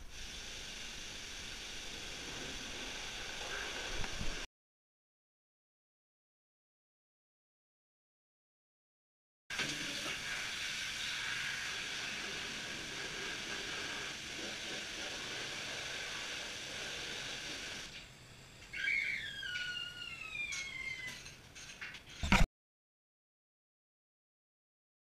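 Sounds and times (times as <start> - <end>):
squeal falling in pitch: 18.7 - 21.3.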